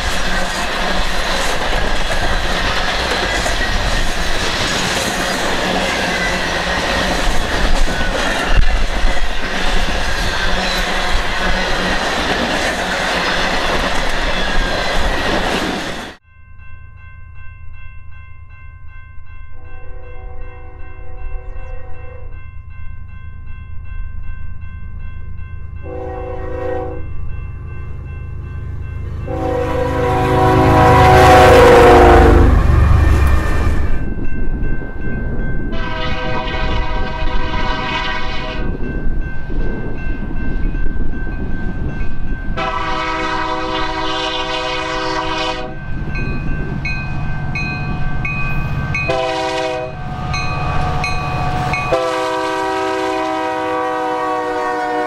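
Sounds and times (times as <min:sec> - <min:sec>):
rumble of engines and train: 0:00.0 - 0:55.0
locomotive air horn blasts: 0:25.8 - 0:27.1, 0:29.2 - 0:33.8, 0:35.7 - 0:38.8, 0:42.6 - 0:45.8, 0:49.1 - 0:50.1, 0:51.8 - 0:55.0.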